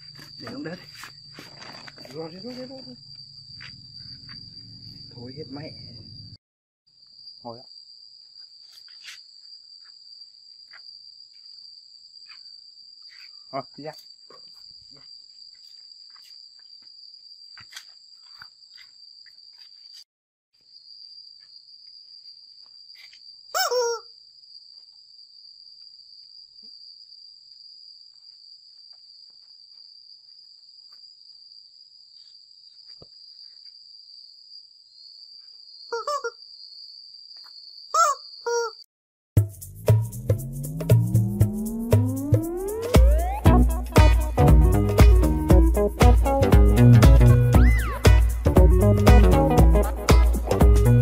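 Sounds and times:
high-pitched insect drone: 0.0s - 6.4s, 39.7s - 45.9s.

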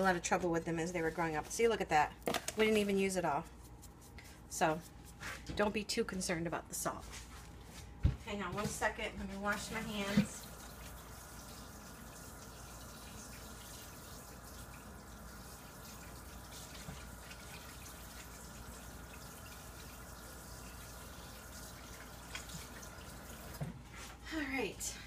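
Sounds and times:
water running from a tap: 9.4s - 23.7s.

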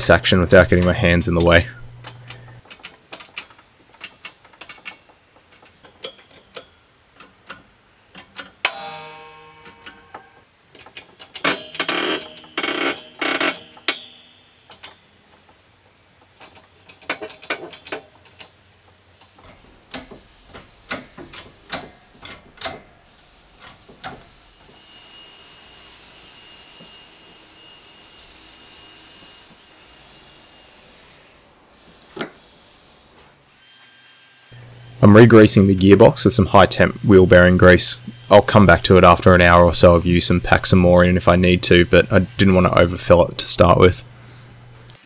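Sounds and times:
metal clicks knocks and scraping: 0.7s - 8.7s, 19.2s - 22.9s
metal grinding: 8.2s - 15.4s, 34.6s - 45.0s.

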